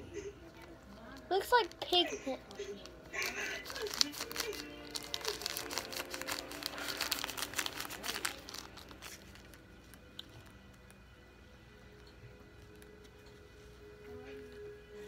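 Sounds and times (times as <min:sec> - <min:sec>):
plastic bag crinkling: 0:00.6 - 0:10.8.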